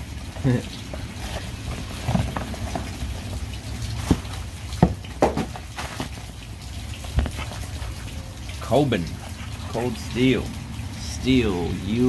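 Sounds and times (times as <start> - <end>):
cardboard packaging handled: 0.9 - 3.4, 4.0 - 6.3.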